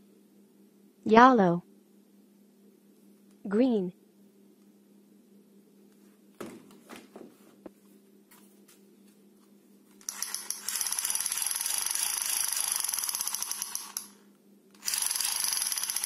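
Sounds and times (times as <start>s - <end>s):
toy rifle rattling: 10.0s - 14.2s, 14.8s - 16.0s.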